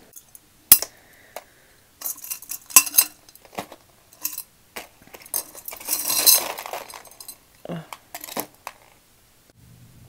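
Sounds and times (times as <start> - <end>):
jewelry clinking and rattling: 2.0 - 9.0.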